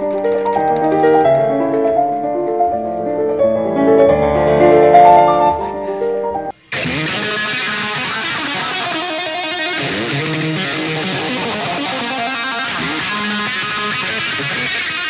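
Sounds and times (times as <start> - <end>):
keyboard notes: 0.0 - 7.7
fast electric guitar playing: 0.0 - 15.0.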